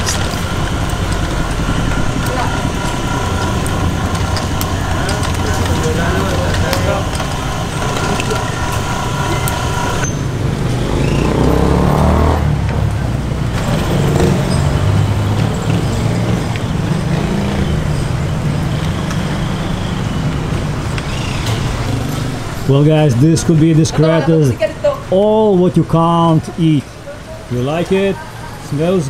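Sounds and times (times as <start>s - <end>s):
steady tonal hum: 0.0s - 18.8s
engine revving: 0.0s - 25.1s
vehicle engines running: 0.0s - 29.0s.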